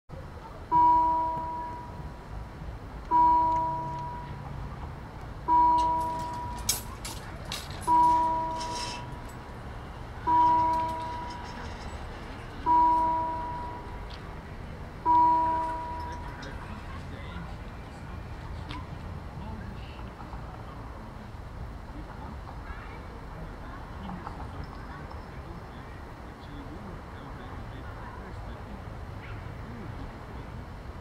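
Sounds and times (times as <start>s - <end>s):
level crossing warning bell: 0.6s - 2.2s, 3.0s - 4.7s, 5.4s - 14.1s, 14.9s - 17.0s.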